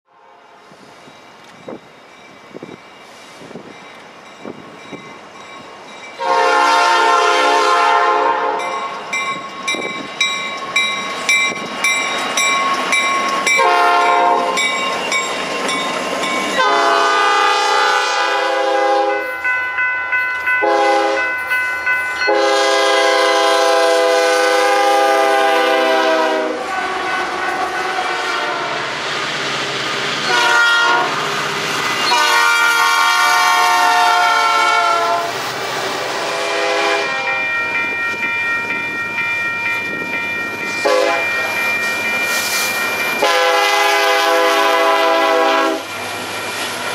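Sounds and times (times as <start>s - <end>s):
locomotive air horn: 0.1s - 0.6s, 6.2s - 8.8s, 13.6s - 14.6s, 16.6s - 19.3s, 20.6s - 21.3s, 22.3s - 28.9s, 30.3s - 31.2s, 32.1s - 35.4s, 36.2s - 37.4s, 40.8s - 41.3s, 43.2s - 45.9s.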